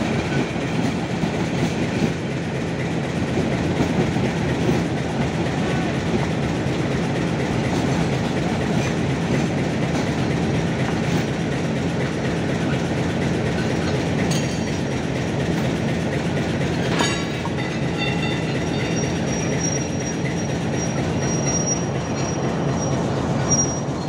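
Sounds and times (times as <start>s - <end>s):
train wheels rumbling on track: 0.0s - 24.0s
high wheel squeal: 17.5s - 24.0s.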